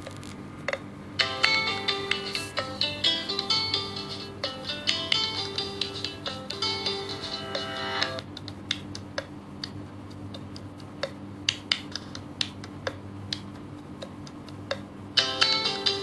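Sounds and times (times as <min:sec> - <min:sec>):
low steady hum: 0:00.0 - 0:16.0
guitar music: 0:01.2 - 0:08.2.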